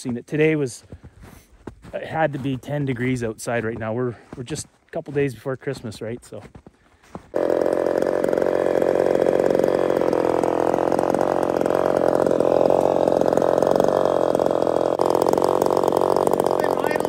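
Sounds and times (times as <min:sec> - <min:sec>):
chainsaw idling: 0:07.3 - 0:17.0.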